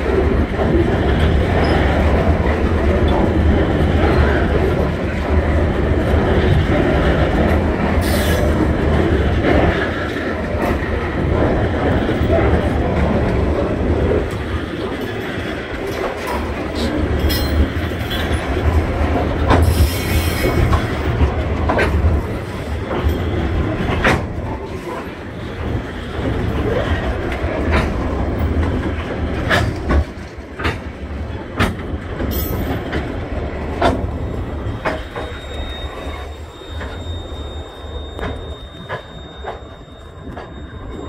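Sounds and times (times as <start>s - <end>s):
freight train rolling past: 0.0s - 41.0s
wheels clicking on rails: 0.0s - 41.0s
wheel squeal: 34.1s - 41.0s.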